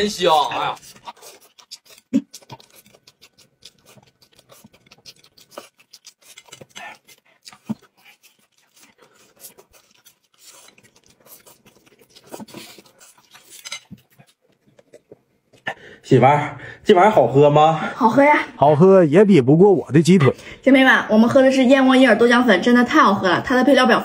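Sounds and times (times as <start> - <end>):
tableware clicks and scrapes: 13.4 - 14.1.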